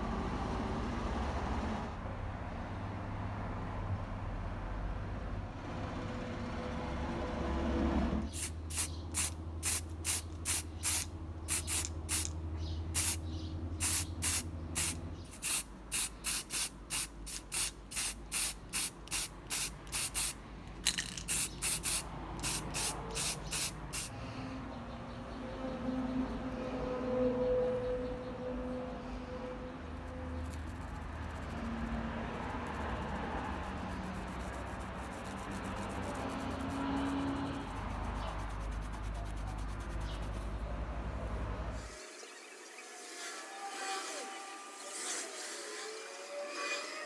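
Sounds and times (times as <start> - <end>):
paint sprayer hissing bursts: 8.3 - 12.3, 13.0 - 13.2, 13.8 - 24.1.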